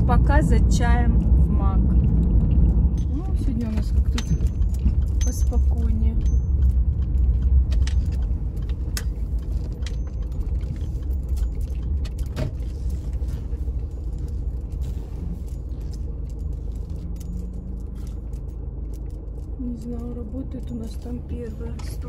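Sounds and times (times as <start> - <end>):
car engine and road rumble: 0.0 - 22.0
light clicks and rattles: 2.0 - 22.0.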